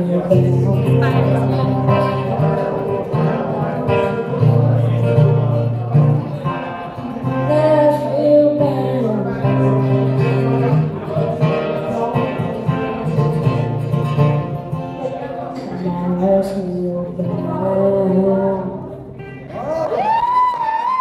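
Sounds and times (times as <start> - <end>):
acoustic guitar strumming: 0.0 - 19.7
person singing: 6.4 - 13.1, 15.6 - 19.8.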